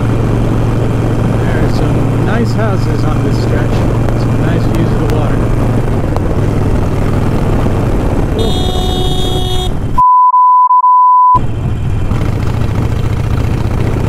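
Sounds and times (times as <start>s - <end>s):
motorcycle engine: 0.0s - 10.0s, 11.4s - 14.0s
wind noise: 0.0s - 10.0s
horn sounding: 8.4s - 10.0s
censor bleep: 10.0s - 11.4s.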